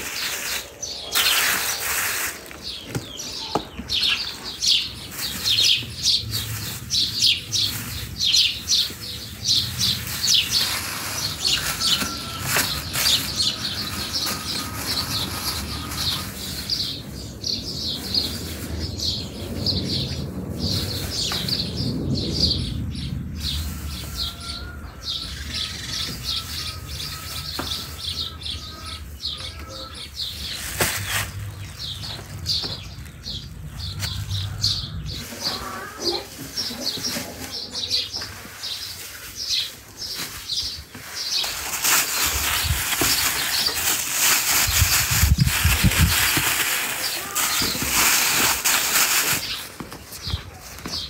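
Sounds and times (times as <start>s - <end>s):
plastic bags crinkling: 0.0s - 17.0s, 40.1s - 50.0s
low rumble: 31.0s - 35.8s.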